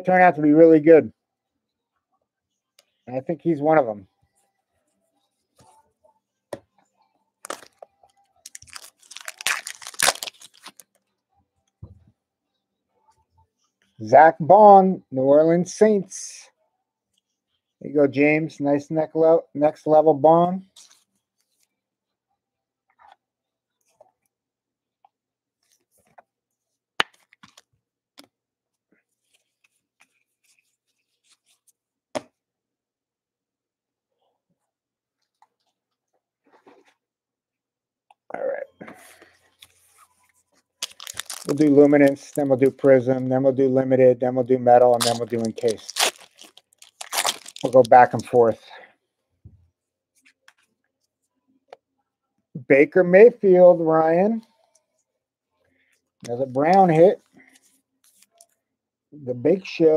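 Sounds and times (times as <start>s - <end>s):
foil wrapper crinkling: 7.4s - 7.7s, 8.4s - 10.9s, 40.8s - 42.9s, 44.9s - 48.6s
cards and plastic holder rustling: 8.5s - 11.0s, 27.0s - 27.7s, 39.5s - 43.3s, 44.8s - 48.6s.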